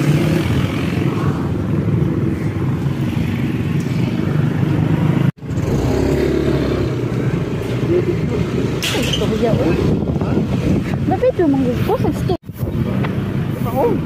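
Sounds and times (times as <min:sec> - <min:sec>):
wind and road noise: 0:00.0 - 0:14.0.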